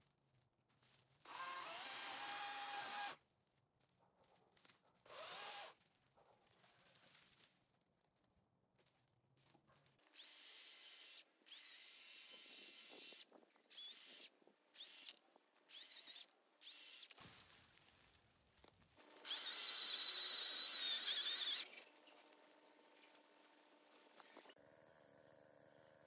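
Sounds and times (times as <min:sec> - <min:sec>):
electric chainsaw motor whining: 0:01.3 - 0:03.2, 0:05.1 - 0:05.8, 0:10.2 - 0:17.2, 0:19.0 - 0:26.0.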